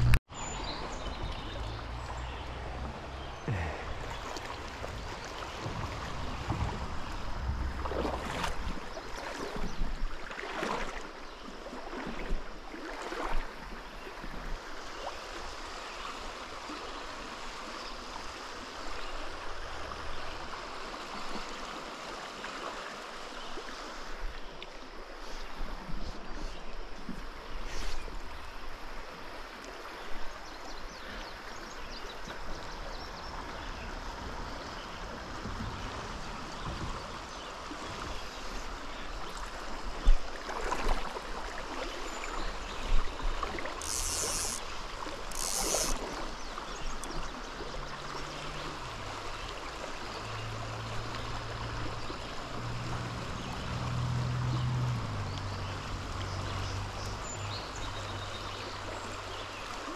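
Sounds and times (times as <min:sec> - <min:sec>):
river water rushing: 0:00.0 - 0:25.2, 0:32.1 - 0:59.9
knocks or splashes: 0:03.4 - 0:11.0.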